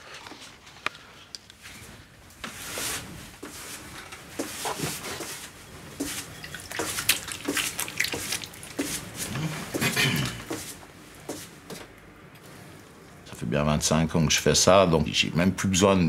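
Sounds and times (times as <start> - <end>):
wet clay squelching: 6.0 - 9.9
water drips and splashes: 6.4 - 8.9.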